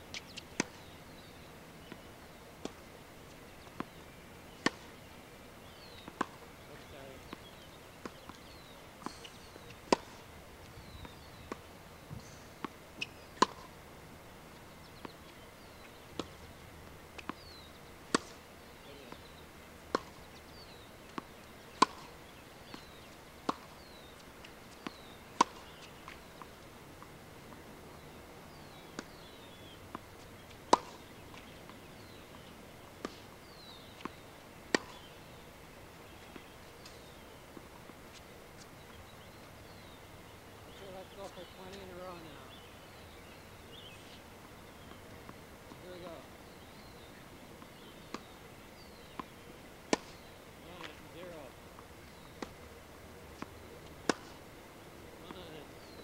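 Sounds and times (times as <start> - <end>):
tennis balls bouncing on court: 0.1 - 13.8, 14.5 - 28.0, 28.6 - 35.2, 40.7 - 42.7, 43.6 - 52.7, 53.4 - 54.4, 55.0 - 56.0
tennis balls struck with racket: 3.8 - 4.9, 5.8 - 6.5, 7.1 - 11.7, 12.6 - 13.7, 15.8 - 16.4, 18.1 - 24.2, 24.8 - 26.5, 28.6 - 32.2, 33.0 - 35.1, 49.9 - 51.6, 53.4 - 54.4.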